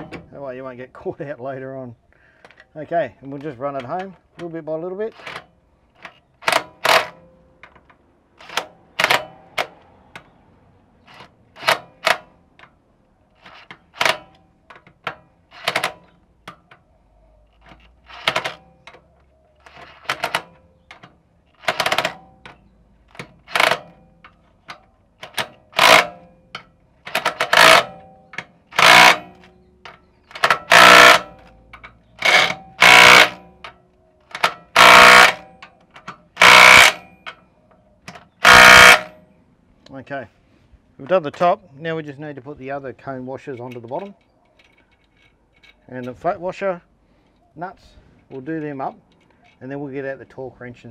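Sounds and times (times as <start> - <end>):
power driver bursts: 25.3 - 26.2, 27.1 - 28.0, 28.7 - 29.4, 30.3 - 31.5, 32.2 - 33.5, 34.4 - 35.6, 36.3 - 37.2, 38.3 - 39.2.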